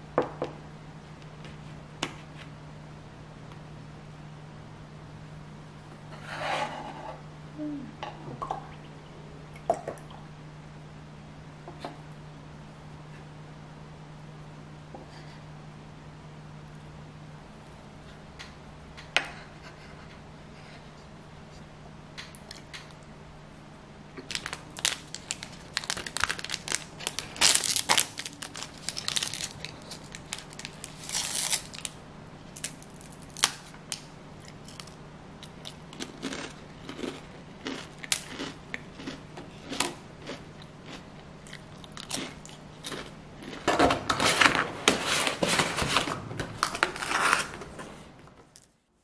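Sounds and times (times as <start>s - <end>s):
low hum: 2.7s - 33.4s
plastic container crinkling: 24.2s - 31.9s.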